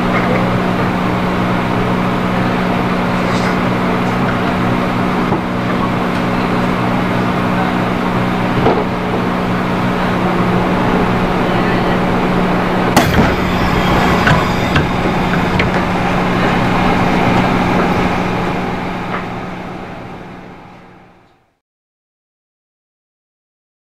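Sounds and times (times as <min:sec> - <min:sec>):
train running noise: 0:00.0 - 0:21.3
train motor hum: 0:00.0 - 0:21.4.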